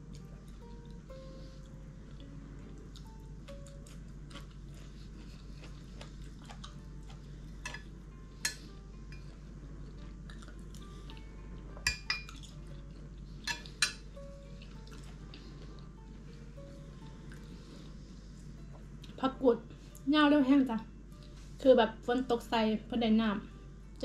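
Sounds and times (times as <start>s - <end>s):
person chewing: 0.1s - 7.8s, 8.6s - 11.3s, 12.2s - 13.8s, 14.6s - 16.4s.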